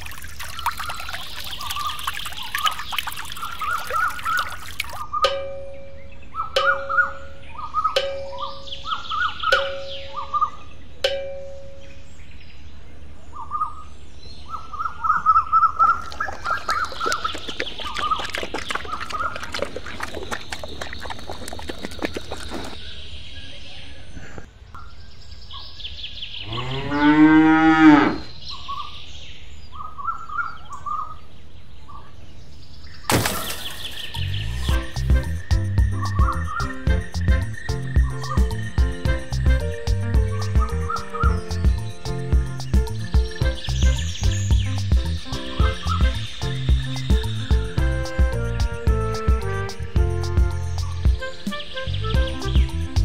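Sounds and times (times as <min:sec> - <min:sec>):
small birds chirping: 0:00.1 - 0:27.1, 0:28.2 - 0:48.8
cow mooing: 0:26.5 - 0:28.3.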